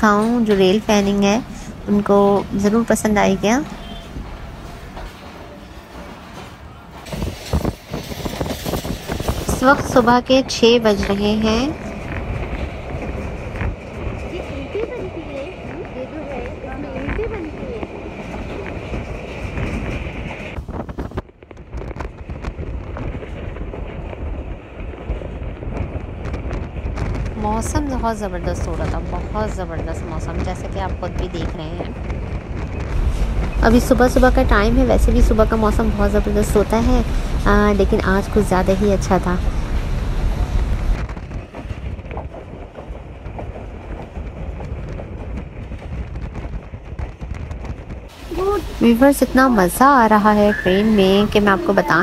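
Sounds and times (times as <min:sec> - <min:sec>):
train running rumble: 0:00.0 - 0:52.0
wind buffeting microphone: 0:00.0 - 0:52.0
high steady hiss: 0:48.1 - 0:52.0.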